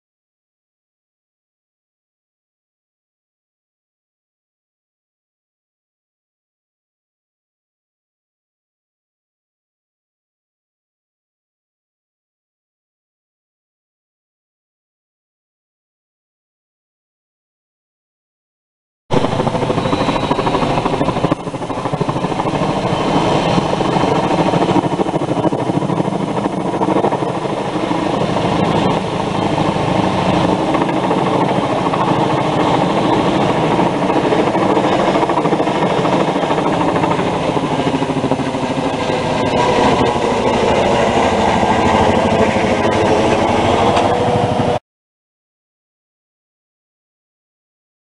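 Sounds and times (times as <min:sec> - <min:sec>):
helicopter hovering overhead: 0:19.1 - 0:44.8.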